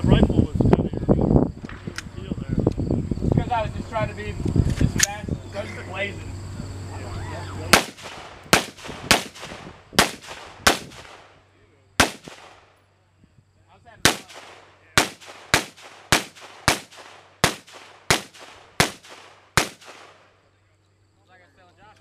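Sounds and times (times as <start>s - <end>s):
rifle gunshots with echo: 7.7s - 11.4s, 12.0s - 12.8s, 14.0s - 20.4s.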